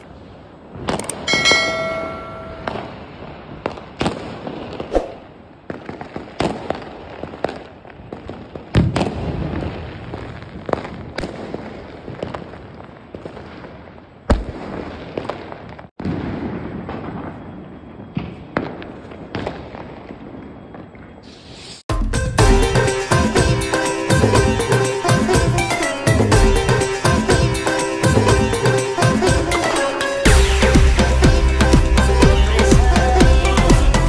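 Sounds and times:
firecracker bangs: 0.8s - 13.7s.

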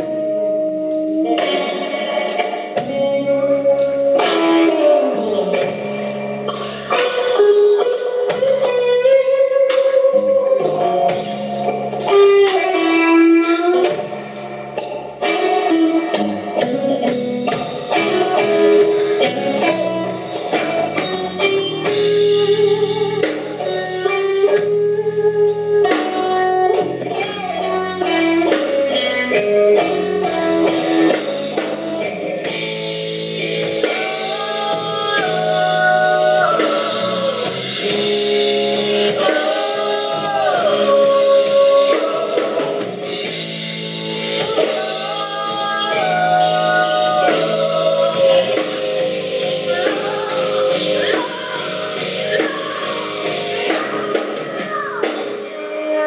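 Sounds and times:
bass guitar: 0.0s - 56.0s
drum kit: 0.0s - 56.0s
electric guitar bending notes: 0.0s - 56.0s.

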